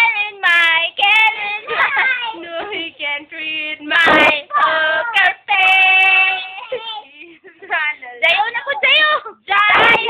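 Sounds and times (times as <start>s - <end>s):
young child singing: 0.0s - 7.3s, 9.5s - 10.0s.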